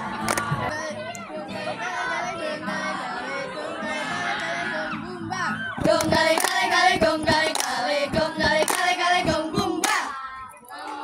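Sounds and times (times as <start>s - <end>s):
girls singing a cheer: 0.0s - 11.0s
hands clapping: 0.2s - 0.6s, 5.8s - 10.1s.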